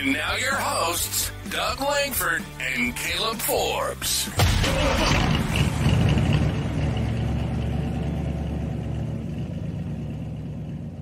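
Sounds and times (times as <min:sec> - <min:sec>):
vehicle engine idling: 0:04.4 - 0:11.0.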